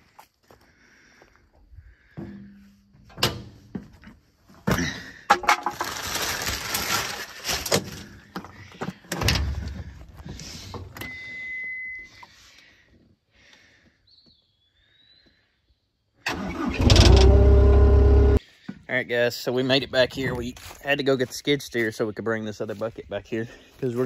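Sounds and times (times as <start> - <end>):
clatter and rustling: 5.3 - 10.4
high warning beep: 11.0 - 12.2.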